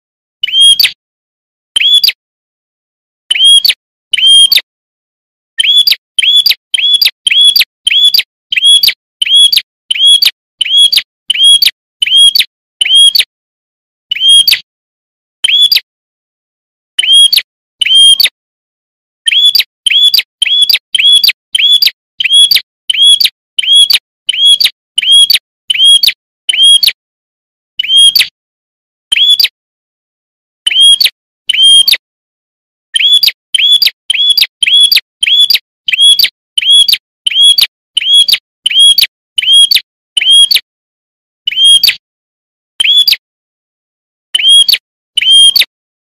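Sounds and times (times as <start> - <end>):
bird chirping sharply: 0.4 - 1.0, 1.8 - 2.2, 3.3 - 4.6, 5.6 - 13.2, 14.1 - 14.6, 15.4 - 15.9, 17.0 - 18.3, 19.3 - 26.8, 29.1 - 29.6, 30.6 - 32.0, 33.0 - 40.6, 41.5 - 41.9, 42.8 - 43.2, 44.4 - 45.6.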